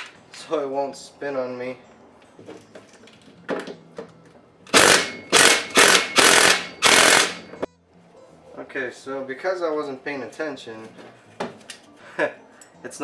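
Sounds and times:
impact driver hammering: 4.7s - 7.6s.

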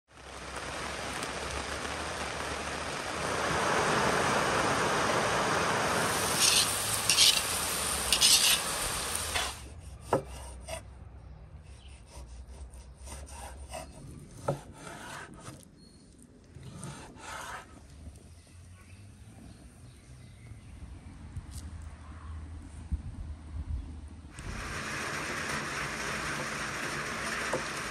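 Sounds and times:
steady rain falling: 0.1s - 9.6s, 24.4s - 27.9s.

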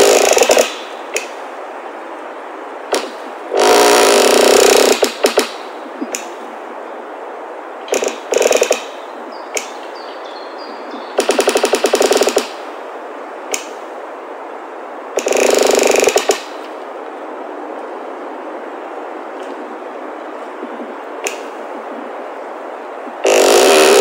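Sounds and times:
steady background hiss: 0.0s - 24.0s
sharp clicks: 13.5s - 13.7s, 15.2s - 16.7s, 21.2s - 21.4s.

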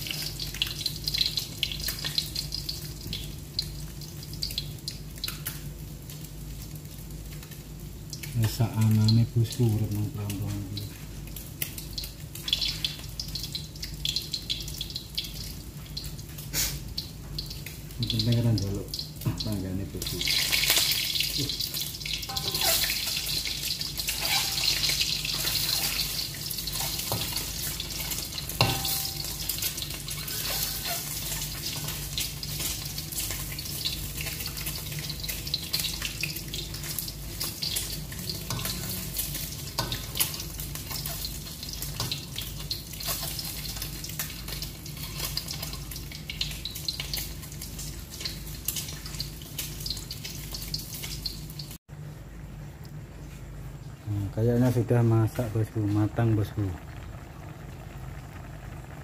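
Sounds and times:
eggs sizzling in hot oil: 0.0s - 51.9s, 52.9s - 59.0s
metal spatula scraping a wok: 22.3s - 23.4s, 24.0s - 32.1s.

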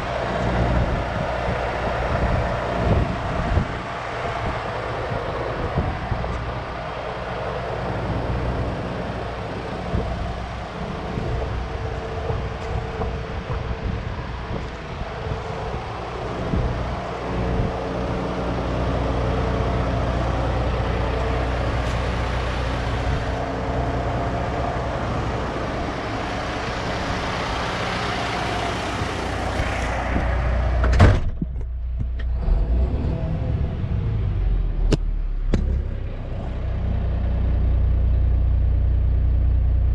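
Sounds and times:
diesel engine idling: 0.0s - 39.9s
loud thump: 30.1s - 32.1s, 34.9s - 36.1s.

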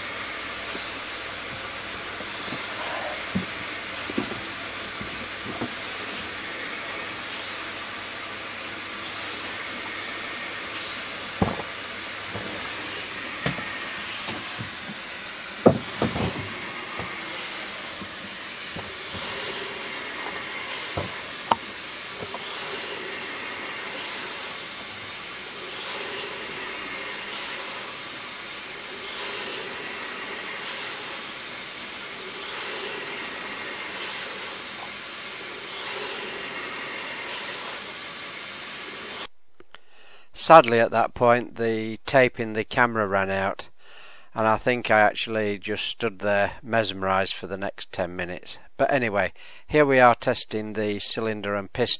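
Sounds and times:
motor hiss: 0.0s - 39.3s.

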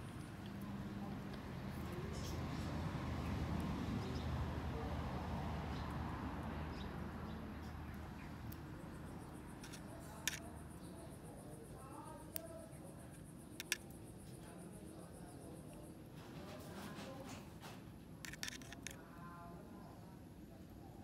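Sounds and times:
metal tweezers clicking: 9.6s - 10.9s, 18.2s - 19.0s.

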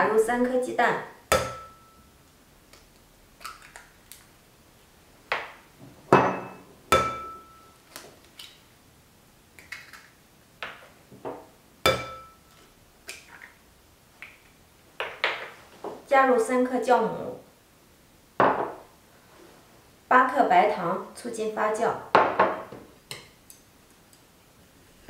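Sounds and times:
bowl ringing: 1.4s - 2.1s, 6.3s - 7.8s, 11.9s - 12.5s.

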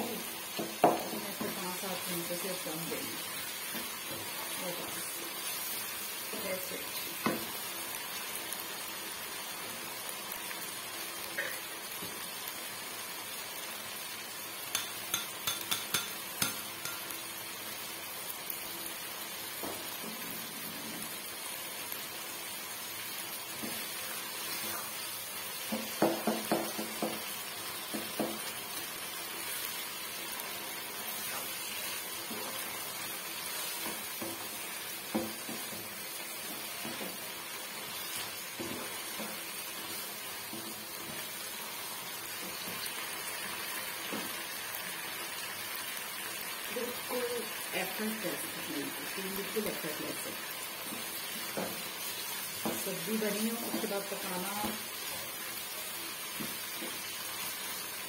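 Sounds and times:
vegetables sizzling in oil: 0.0s - 58.0s
wooden spoon knocking on pan: 0.5s - 1.6s, 7.2s - 7.5s, 14.7s - 17.1s, 19.6s - 19.8s, 25.7s - 28.5s, 35.1s - 35.9s, 50.9s - 51.8s, 52.6s - 52.9s, 53.6s - 54.0s.

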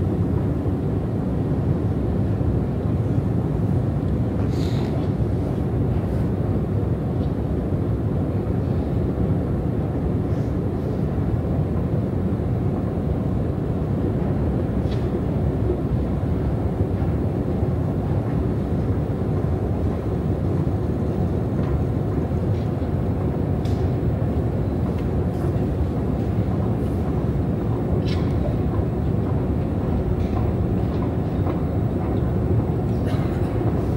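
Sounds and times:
escalator rumble: 15.6s - 33.9s.

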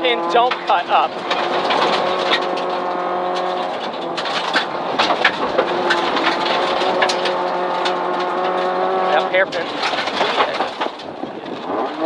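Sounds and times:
rally car engine from inside cabin: 0.0s - 12.0s
gravel pinging against car: 0.1s - 12.0s.

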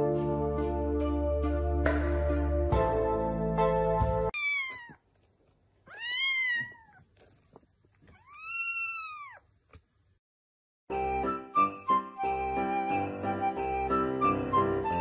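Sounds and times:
music: 0.0s - 4.3s, 10.9s - 15.0s
kitten meowing: 4.4s - 5.0s, 5.9s - 7.0s, 8.1s - 9.4s.

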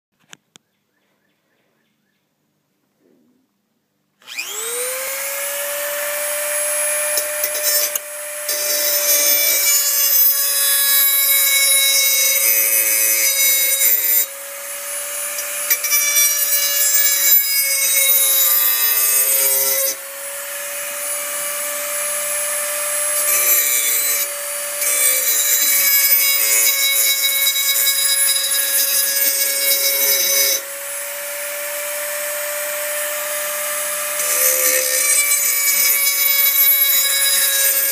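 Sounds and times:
rotary tool high whine: 4.2s - 37.9s
grinding stone on metal blade: 5.9s - 31.0s, 31.8s - 37.9s.

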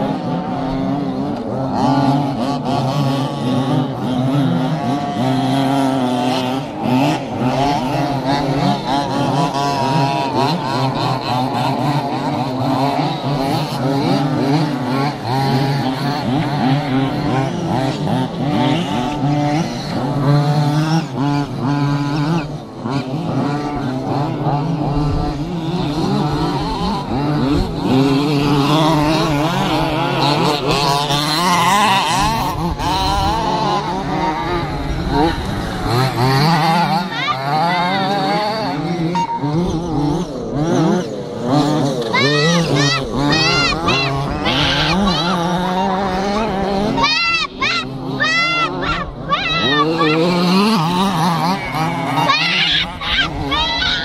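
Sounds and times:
rc truck engines buzzing and revving: 0.0s - 54.0s.

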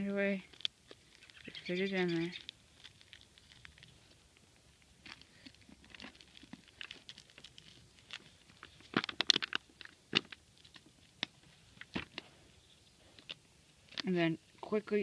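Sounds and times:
plastic baggie crinkling: 0.4s - 12.3s.

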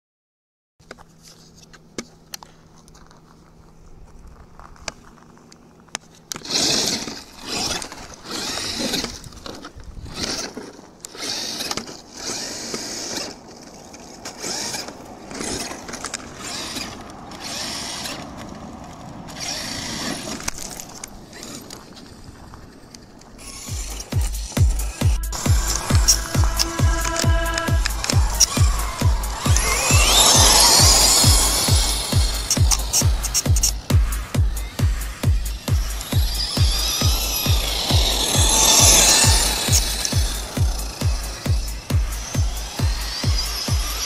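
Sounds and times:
rc truck motor whine: 6.2s - 44.0s
tyres spraying dirt and gravel: 10.5s - 44.0s
faint hum: 19.9s - 44.0s
clicks: 22.9s - 41.9s.

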